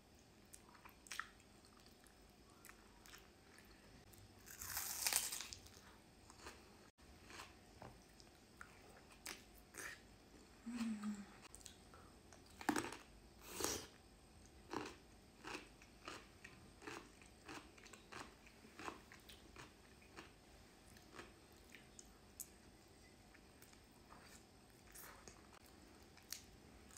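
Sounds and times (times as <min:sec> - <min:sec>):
crunchy bite into cucumber: 0:04.4 - 0:05.7.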